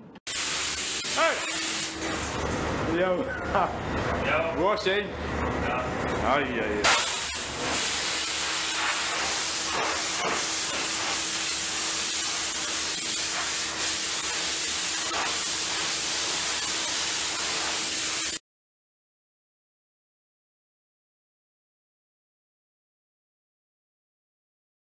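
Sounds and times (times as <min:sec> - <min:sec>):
pressure washer jet hissing: 0:00.3 - 0:02.2, 0:06.8 - 0:18.4.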